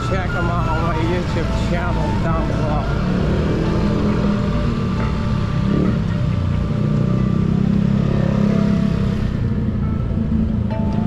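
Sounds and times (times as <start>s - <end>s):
motorbikes passing: 0.0s - 11.0s
road noise: 0.0s - 11.0s
scooter engine hum: 0.0s - 11.0s.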